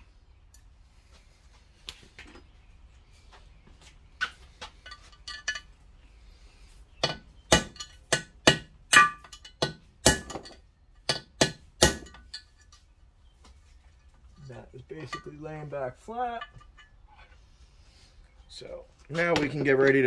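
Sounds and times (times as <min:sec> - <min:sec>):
hammer striking metal: 0:07.0 - 0:12.4.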